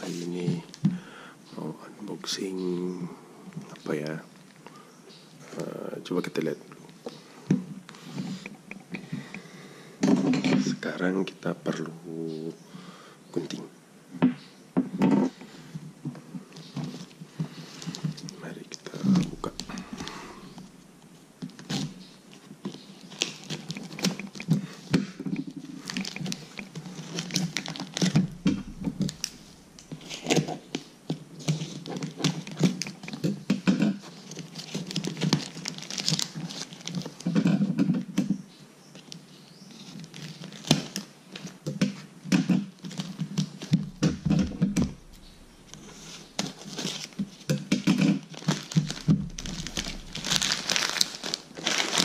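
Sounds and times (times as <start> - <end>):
plastic wrapping tearing and crinkling: 21.5 - 33.3, 34.0 - 37.4, 39.8 - 41.6, 42.8 - 52.0.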